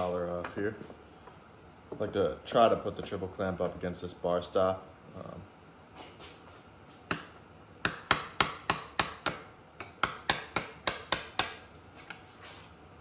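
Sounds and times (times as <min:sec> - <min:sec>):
hammer tapping metal: 0:07.1 - 0:11.7.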